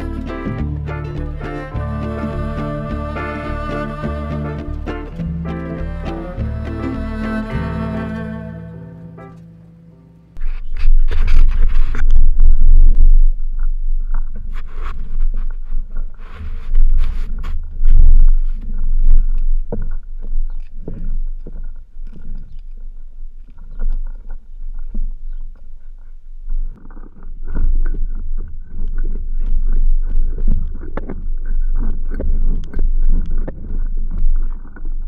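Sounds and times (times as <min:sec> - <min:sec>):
camera handling rumble: 0:10.4 - 0:25.4.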